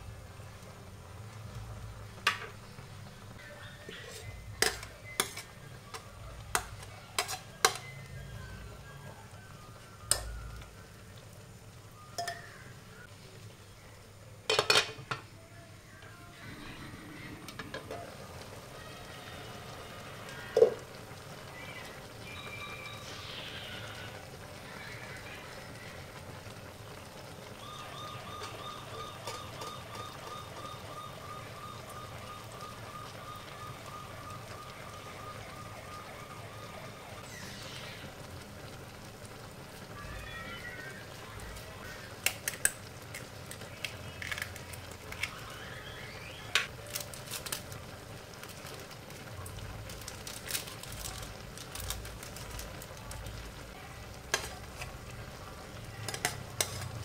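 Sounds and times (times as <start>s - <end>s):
soup bubbling in a pot: 0.0s - 14.6s, 16.4s - 57.0s.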